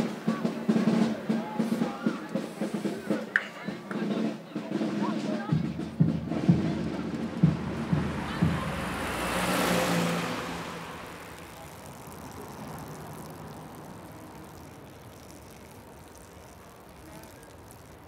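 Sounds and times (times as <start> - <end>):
quiet street background: 0.0 - 18.0
car passing by: 6.4 - 15.5.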